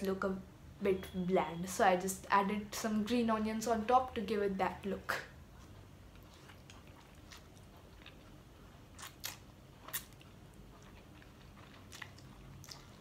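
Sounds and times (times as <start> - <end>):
slurping and chewing noodles: 5.5 - 13.0.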